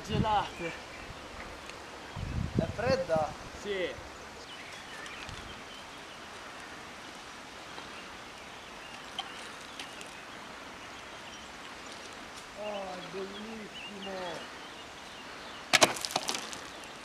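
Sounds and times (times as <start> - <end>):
outdoor background hiss: 0.0 - 17.0
faint bird chirps: 4.1 - 15.7.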